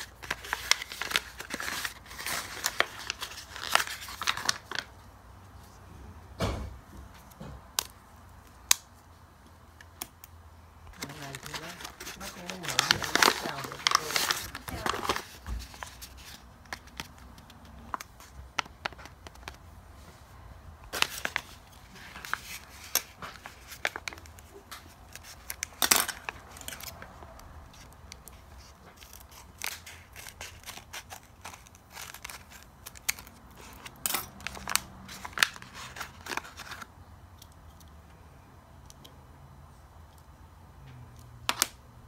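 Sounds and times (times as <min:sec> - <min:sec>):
paper crinkling and rustling: 0:00.0 - 0:05.0, 0:10.9 - 0:20.1, 0:20.9 - 0:36.9
scissors snipping paper: 0:25.1 - 0:36.8.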